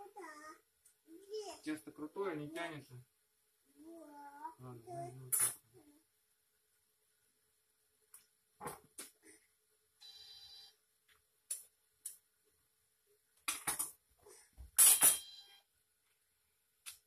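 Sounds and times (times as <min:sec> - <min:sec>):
electronic ringing tone: 0:10.0 - 0:10.8, 0:15.1 - 0:15.6.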